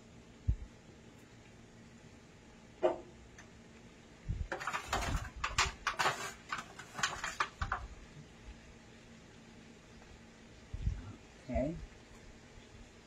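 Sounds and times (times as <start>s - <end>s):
knock: 2.8s - 3.1s
foil pan crinkling: 4.5s - 7.9s.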